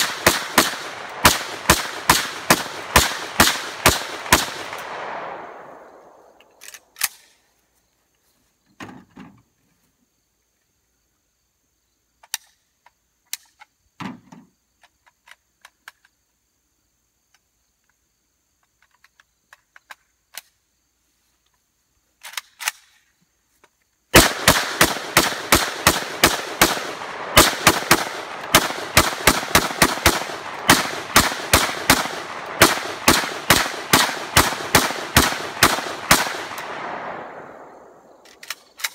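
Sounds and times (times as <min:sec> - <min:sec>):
rapid rifle shots echoing: 0:00.0 - 0:06.2, 0:24.1 - 0:38.2
small clicks and knocks: 0:18.6 - 0:20.6.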